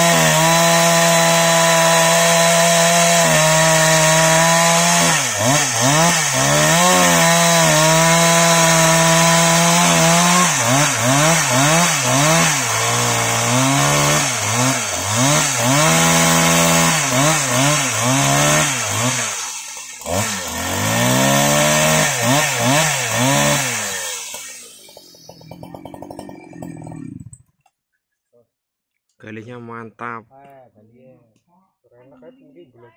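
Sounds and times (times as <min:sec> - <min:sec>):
chainsaw cutting log at full throttle: 0:00.0 - 0:27.4.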